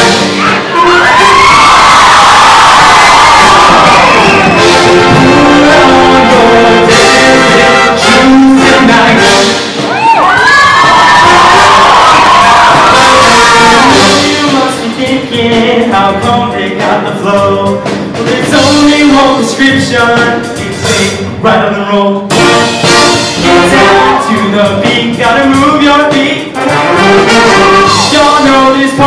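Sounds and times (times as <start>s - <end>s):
audience cheering: 0.0s - 6.3s, 9.8s - 14.5s
live band with brass playing: 0.0s - 29.0s.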